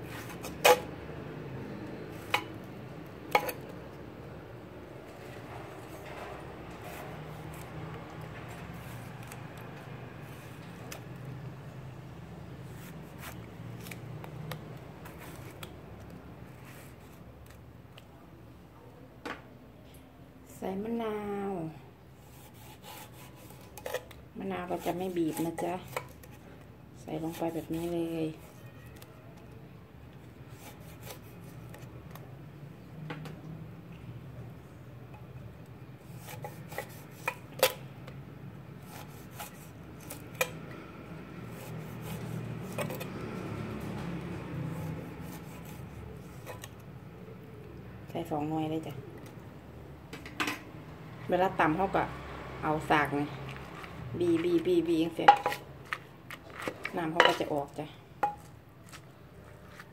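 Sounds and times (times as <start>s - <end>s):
knife cutting tomato: 6.6s - 11.3s, 12.5s - 17.6s, 22.2s - 26.4s, 27.1s - 29.5s, 30.5s - 32.3s, 36.0s - 38.2s, 38.8s - 46.9s.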